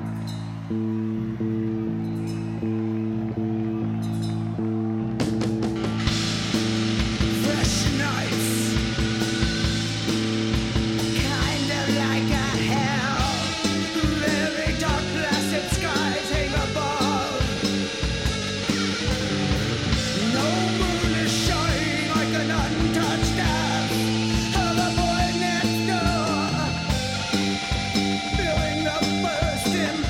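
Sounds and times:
bass guitar: 0:00.0 - 0:30.0
electric guitar chords: 0:00.0 - 0:30.0.

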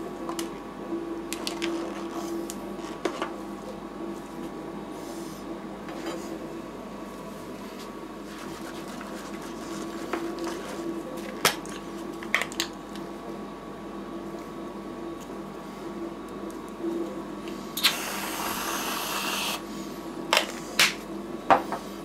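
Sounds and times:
refrigeration unit humming: 0:00.0 - 0:22.0.

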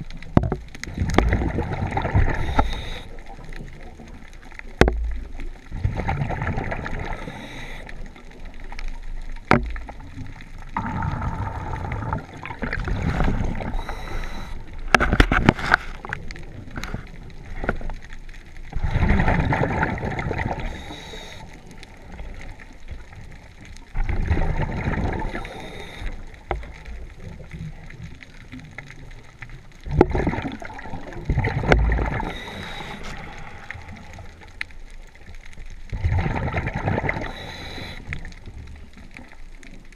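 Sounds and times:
diver exhaling bubbles: 0:00.9 - 0:03.2, 0:10.8 - 0:14.6, 0:24.0 - 0:26.8, 0:29.9 - 0:34.4, 0:36.0 - 0:38.1.

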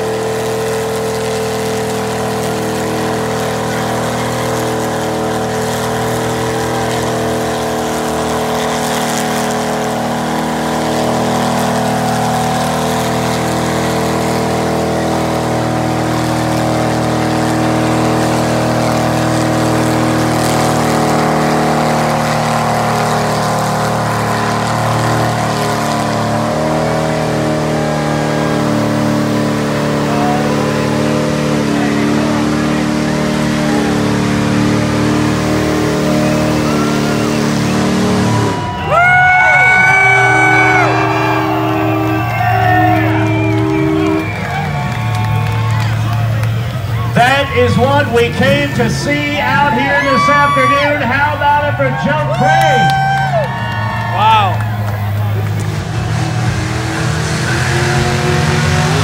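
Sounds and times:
mud and water splashing: 0:00.0 - 0:38.6
truck engine running hard: 0:00.0 - 0:59.0.

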